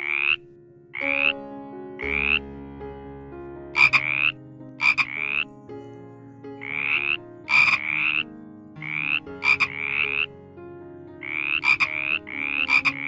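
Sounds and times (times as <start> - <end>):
frog croaking: 0.0 - 1.3, 2.0 - 2.4, 3.7 - 5.5, 6.6 - 10.3, 11.2 - 13.0.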